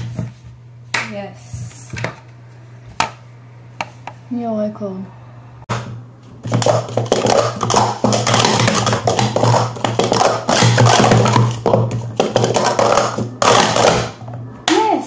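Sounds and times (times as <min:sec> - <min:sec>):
plastic cups clattering: 0:05.7 - 0:14.8.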